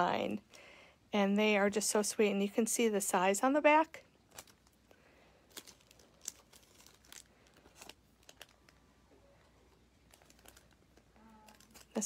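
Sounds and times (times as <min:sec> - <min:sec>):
plastic packages crinkling: 0:04.2 - 0:12.0.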